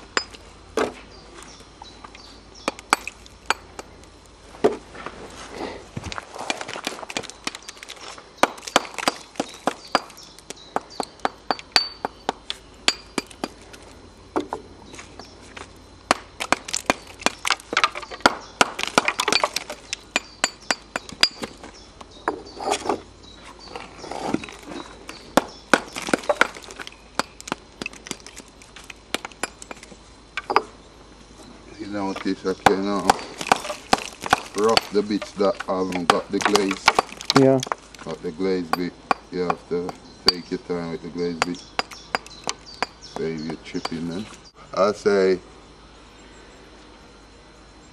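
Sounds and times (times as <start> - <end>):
mortar bits clinking: 2.6 - 4.0, 6.0 - 13.8, 16.1 - 23.0, 23.8 - 30.7, 32.1 - 44.4
axe chipping mortar off brick: 6.5 - 10.2, 16.1 - 21.6, 24.4 - 30.6, 32.6 - 37.8.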